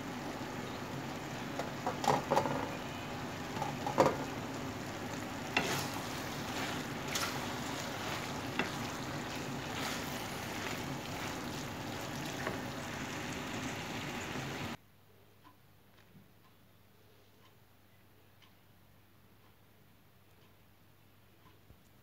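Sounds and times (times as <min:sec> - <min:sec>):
steady hiss and low hum: 0:00.0 - 0:22.0
pasta tossed in frying pan: 0:01.6 - 0:14.8.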